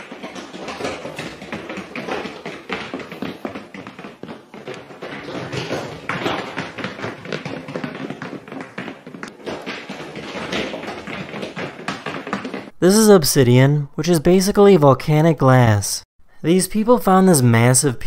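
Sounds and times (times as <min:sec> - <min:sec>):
dog paws tapping on hard floor: 0:00.0 - 0:12.8.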